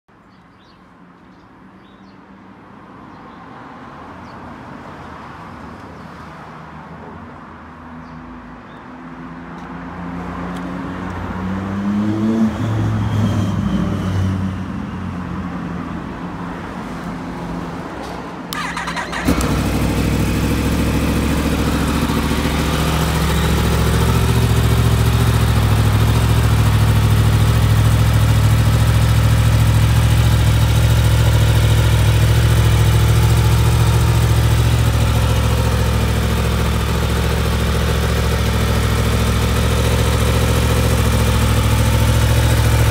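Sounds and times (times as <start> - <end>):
motorcycle engine idling: 18.5 - 42.9
motorcycle engine starting: 18.5 - 42.9.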